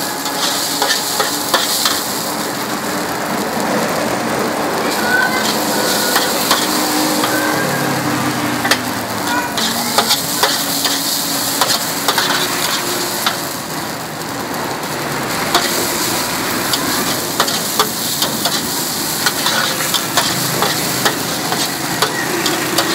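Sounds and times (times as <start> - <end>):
food sizzling in a wok: 0.0 - 22.9
metal spatula scraping pan: 0.2 - 2.1, 5.2 - 7.9, 8.6 - 13.6, 15.5 - 16.1, 16.7 - 22.9.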